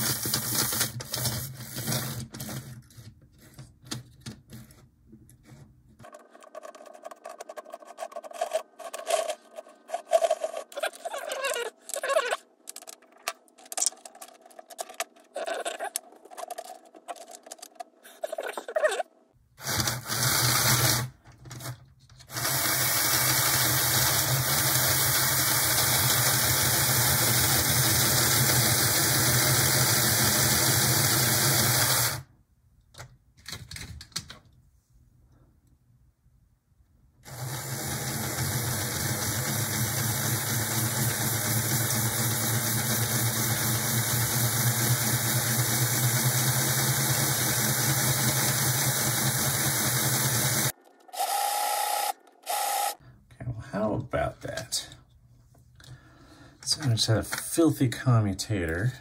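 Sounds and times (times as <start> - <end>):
clicks and scrapes of parts: 0.0 - 18.9
model train motor buzzing: 19.6 - 21.1, 22.3 - 32.2, 37.3 - 53.0.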